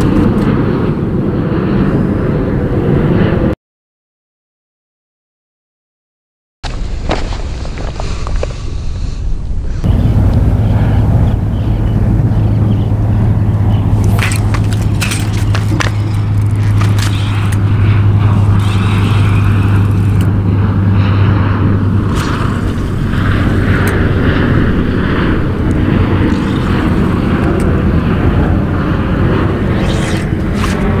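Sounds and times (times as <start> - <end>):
wind buffeting microphone: 6.7 - 31.0.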